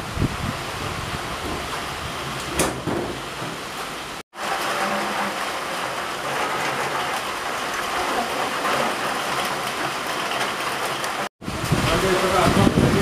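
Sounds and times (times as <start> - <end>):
heavy rain on leaves: 0.0 - 13.0.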